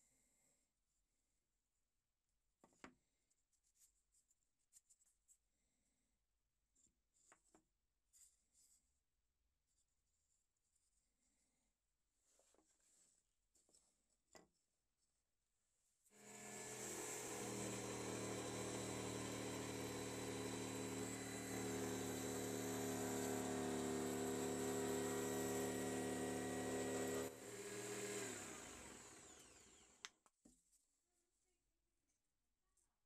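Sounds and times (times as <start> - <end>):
motor winding down: 16.2 - 30.0
jigsaw cutting plywood: 16.2 - 30.1.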